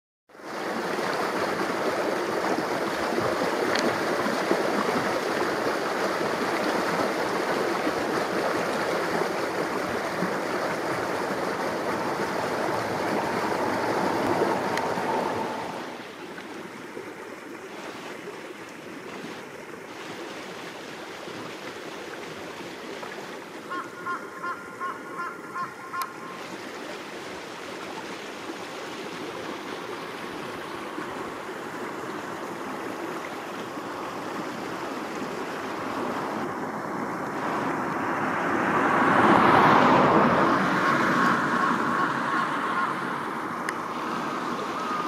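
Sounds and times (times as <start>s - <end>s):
steady rushing noise: 6.3s - 16.2s, 35.5s - 45.0s.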